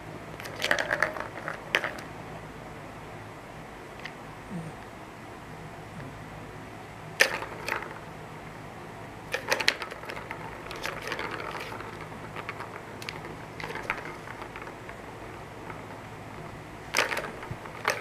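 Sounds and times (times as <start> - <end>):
balls rattling on plastic tracks: 0.4 - 2.1, 7.2 - 8.1, 9.3 - 18.0.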